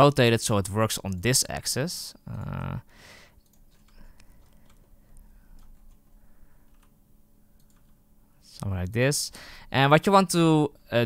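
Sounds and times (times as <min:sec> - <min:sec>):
person humming: 0:02.2 - 0:02.8
mouse wheel scrolling: 0:03.4 - 0:06.9, 0:07.6 - 0:08.0.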